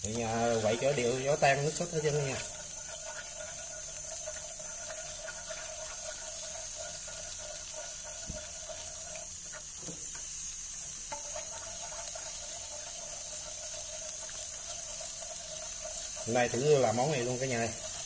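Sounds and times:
sauce bubbling in frying pan: 0:00.0 - 0:18.0.

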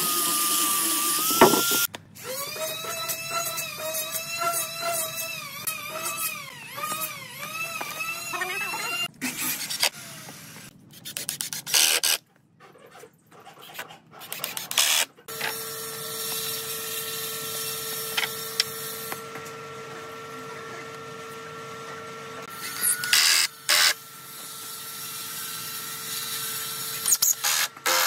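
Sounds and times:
wooden boards scraping on concrete: 0:01.3 - 0:01.9.

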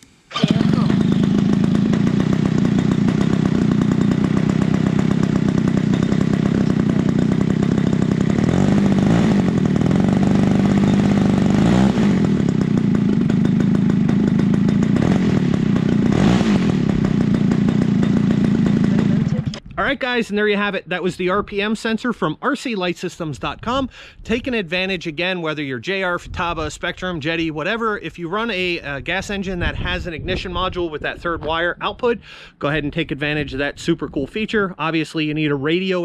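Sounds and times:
model airplane engine running: 0:00.3 - 0:19.6.

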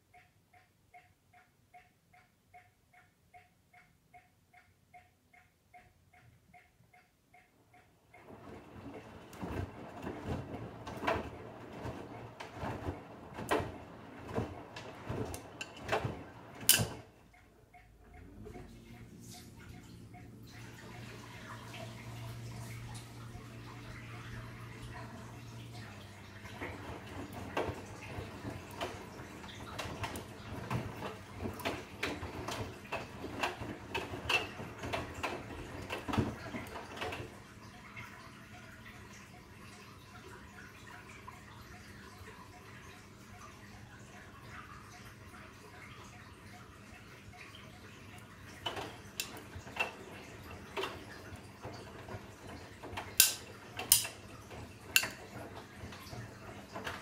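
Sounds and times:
knocks and clicks: 0:00.0 - 0:19.1, 0:48.6 - 0:57.0
washing machine drum tumbling laundry: 0:08.0 - 0:57.0
load clicking and knocking in drum: 0:15.3 - 0:17.0, 0:53.0 - 0:54.2.

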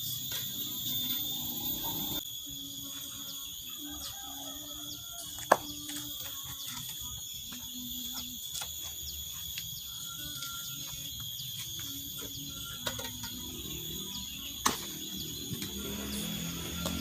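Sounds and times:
insects droning: 0:00.0 - 0:17.0
stones and tools knocking: 0:05.2 - 0:09.7, 0:10.4 - 0:14.0.

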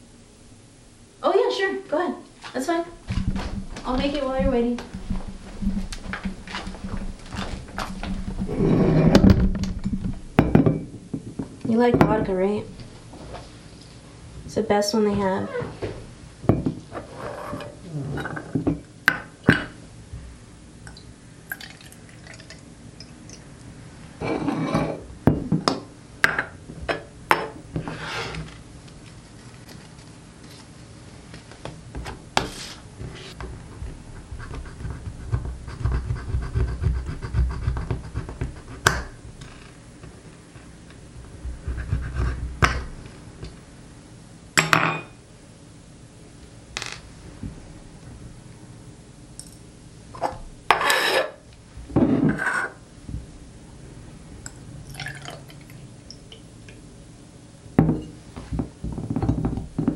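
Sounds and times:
liquid pouring: 0:21.5 - 0:23.4, 0:54.8 - 0:56.4.

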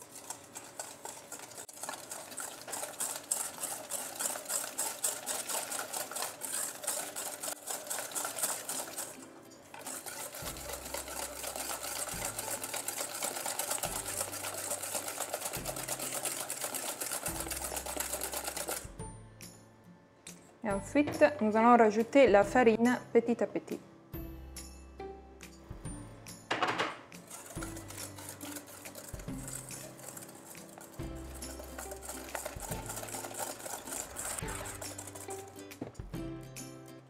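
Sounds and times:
whisk beating in metal bowl: 0:00.0 - 0:19.0, 0:26.6 - 0:36.2.

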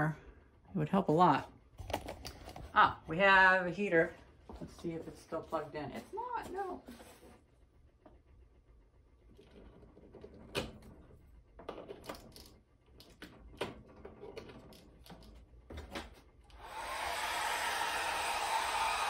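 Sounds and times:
hair dryer blowing: 0:16.5 - 0:19.0.

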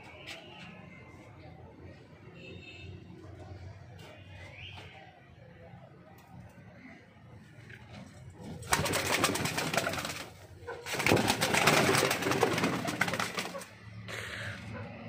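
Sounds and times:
pigeons shuffling: 0:07.8 - 0:13.7
pigeon wings flapping: 0:08.4 - 0:13.7.

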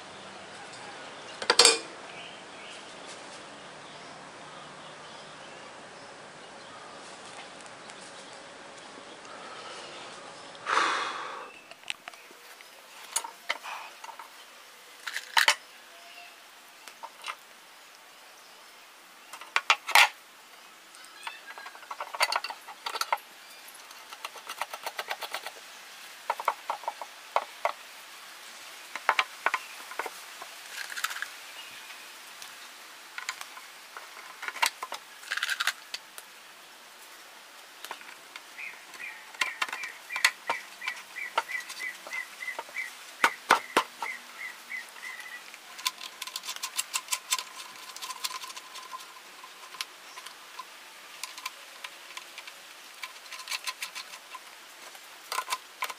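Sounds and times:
metal bolts clinking and rattling: 0:01.4 - 0:01.9, 0:15.0 - 0:15.6, 0:19.3 - 0:20.2, 0:21.2 - 0:25.6, 0:45.1 - 0:55.9.

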